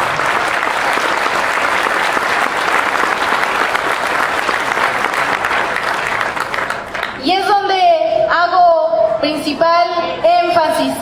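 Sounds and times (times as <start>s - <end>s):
audience applauding: 0.0s - 7.2s.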